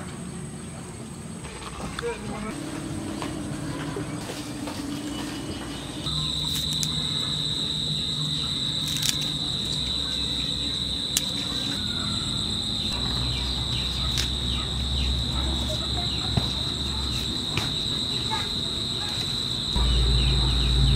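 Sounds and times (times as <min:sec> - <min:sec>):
high-pitched insect trill: 0:06.0 - 0:20.9
low background rumble: 0:19.6 - 0:20.9.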